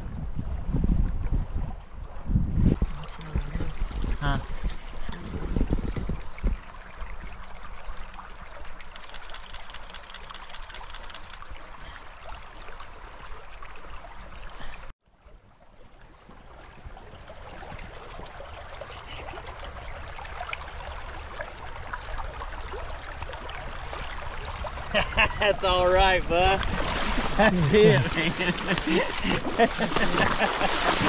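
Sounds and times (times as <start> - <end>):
river water rushing over riffle: 17.9 - 31.0.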